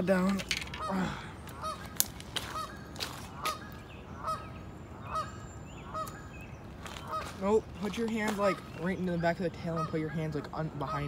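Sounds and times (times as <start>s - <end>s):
goose honking: 1.6s - 1.9s, 2.5s - 4.5s, 9.6s - 11.0s.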